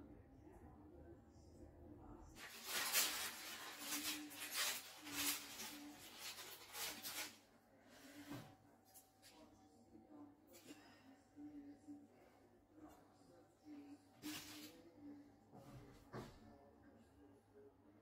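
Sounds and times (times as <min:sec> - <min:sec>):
filo crust and baking paper crackling: 0:02.4 - 0:08.3, 0:14.2 - 0:14.9.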